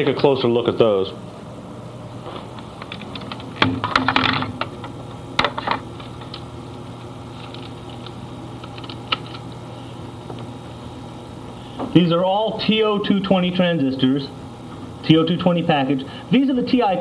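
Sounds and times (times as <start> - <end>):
low steady hum: 0.0 - 17.0
small clicks and rattles: 7.4 - 9.4.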